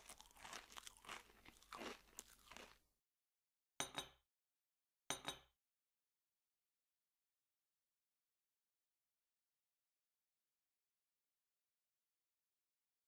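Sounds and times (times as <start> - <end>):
carrot crunching and chewing: 0.0 - 2.8.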